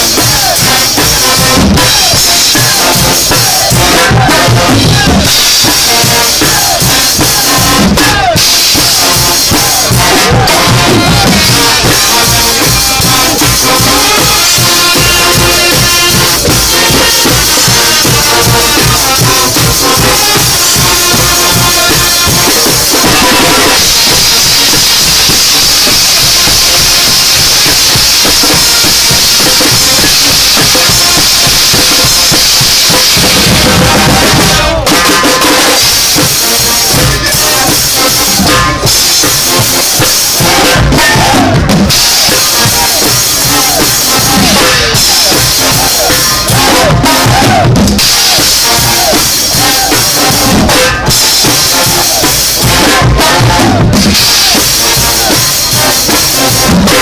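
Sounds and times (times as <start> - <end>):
drums beating fast rhythm: 0.0 - 57.0
crashing cymbals: 10.7 - 33.8.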